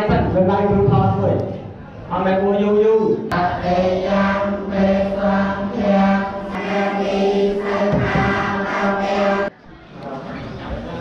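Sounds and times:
monks chanting in unison: 3.3 - 9.5.

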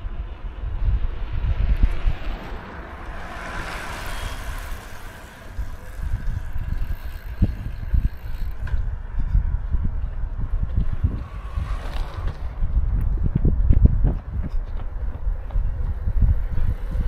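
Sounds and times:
broad rushing sound: 0.0 - 8.0, 10.4 - 14.0
wind buffeting microphone: 0.0 - 17.0.

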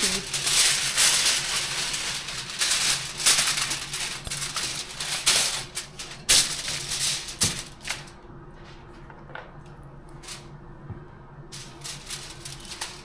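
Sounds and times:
aluminium foil crinkling: 0.0 - 8.2, 10.2 - 10.5, 11.5 - 13.0.

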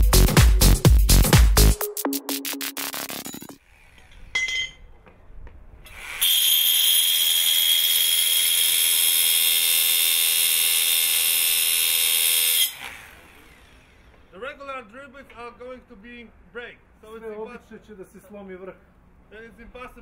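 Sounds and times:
electronic music: 0.0 - 3.6
rotary hammer drill boring steel: 3.6 - 4.8, 5.8 - 14.3.

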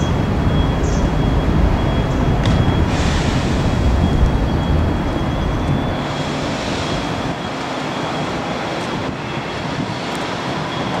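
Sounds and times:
faint high whine: 0.0 - 8.4
street traffic noise: 0.0 - 11.0.

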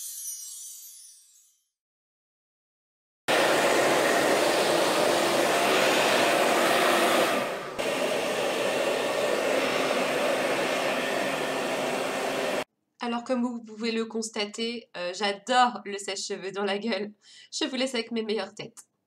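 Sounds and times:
hair dryer blowing: 3.3 - 12.7.

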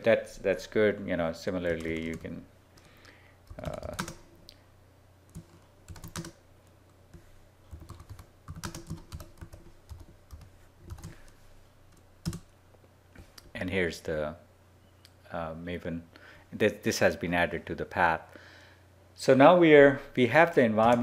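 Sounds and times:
keyboard keys clicking: 5.3 - 6.3, 7.7 - 11.1.

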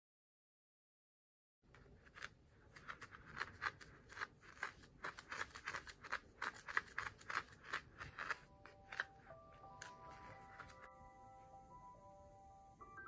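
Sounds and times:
stick scraping glitter in a cup: 1.7 - 10.9.

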